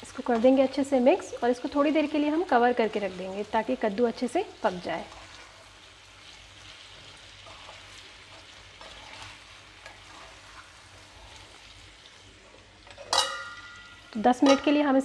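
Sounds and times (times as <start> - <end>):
pumpkin sizzling in oil: 0.0 - 15.0
spatula scraping pan: 5.0 - 5.7, 6.8 - 11.6.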